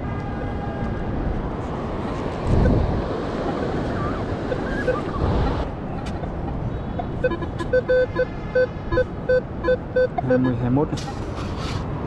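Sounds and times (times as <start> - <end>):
wind on microphone: 0.8 - 5.8
metal detector beeping: 7.2 - 11.3.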